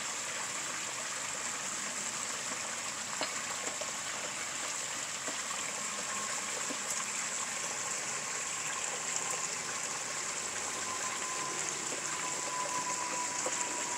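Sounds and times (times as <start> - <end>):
thin steady tone: 0.0 - 13.9
water trickling and splashing: 0.0 - 13.9.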